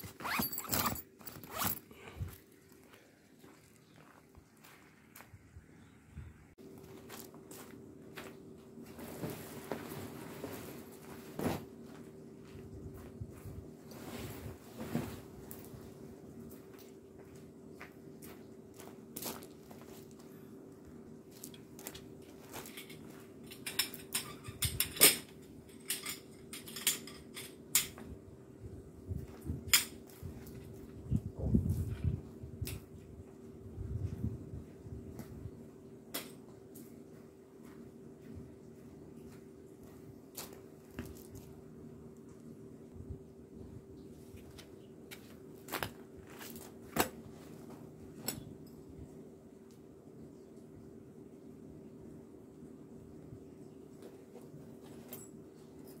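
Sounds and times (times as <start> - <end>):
tent gear clacking on gravel: 0.0 - 1.9
faint steady hum: 0.0 - 56.0
metal tent poles clinking: 0.1 - 1.8, 21.4 - 28.0.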